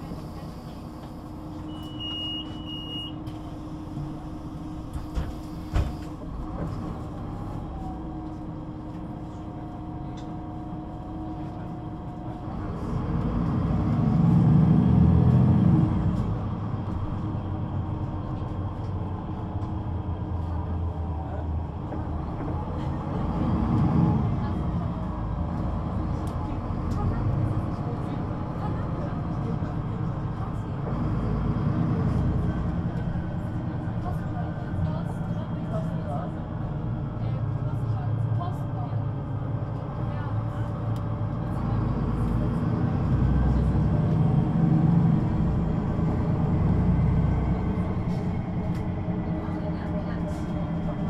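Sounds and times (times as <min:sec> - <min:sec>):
bus diesel engine: 0:00.0 - 0:51.0
short beep: 0:01.7 - 0:03.2.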